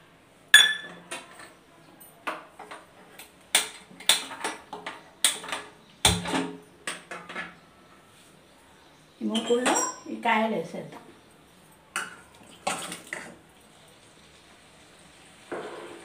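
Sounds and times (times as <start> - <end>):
metal pan knocking on stove grate: 0.6 - 1.0.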